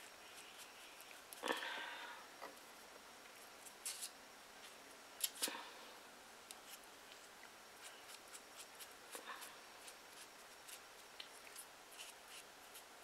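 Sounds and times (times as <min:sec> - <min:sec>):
soft rustling of paper figure: 0:06.6 - 0:13.0.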